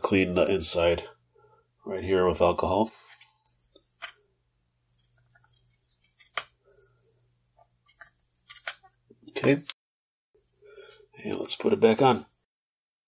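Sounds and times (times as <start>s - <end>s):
cotton swab scrubbing plastic: 3.0s - 4.2s, 4.9s - 9.1s.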